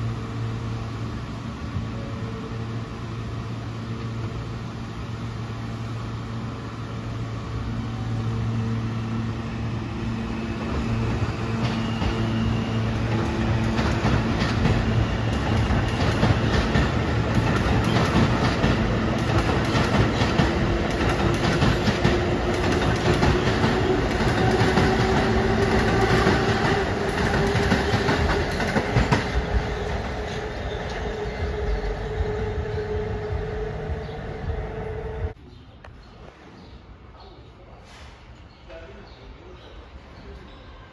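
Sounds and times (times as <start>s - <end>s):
wheels clacking over rail joints: 11.5s - 31.1s.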